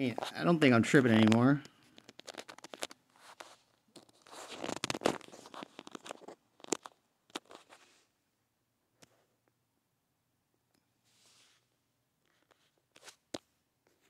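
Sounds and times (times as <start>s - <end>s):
rustling crinkling: 0.0s - 8.1s.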